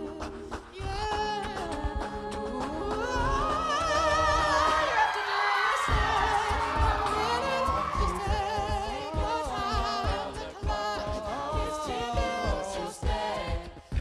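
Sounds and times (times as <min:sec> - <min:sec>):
sung backing harmonies: 0:00.0 - 0:14.0
vocal percussion thumps: 0:00.0 - 0:14.0
male lead vocal singing: 0:05.8 - 0:13.8.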